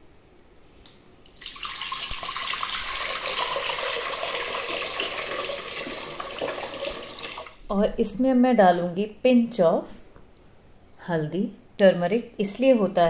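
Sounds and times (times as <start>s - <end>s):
water splashing into metal pot: 1.2s - 7.6s.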